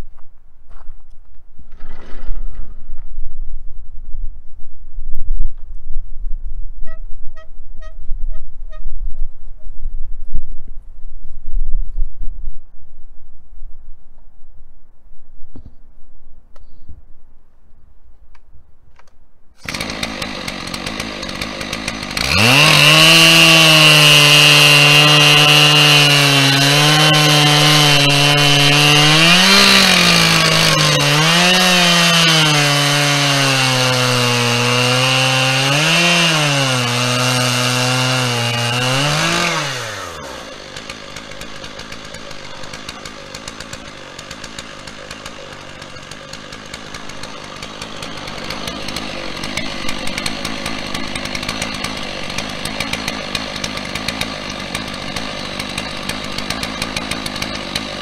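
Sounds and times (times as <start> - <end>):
chainsaw cutting through log: 19.6 - 58.0.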